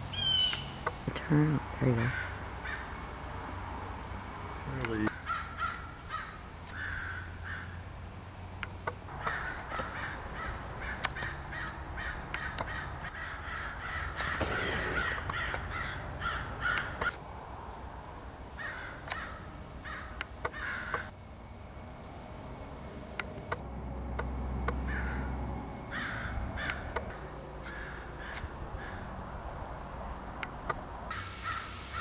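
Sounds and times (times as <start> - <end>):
crows cawing: 1.9 - 3.0, 5.1 - 7.8, 9.1 - 17.2, 18.5 - 21.1, 24.8 - 29.2, 31.4 - 32.0.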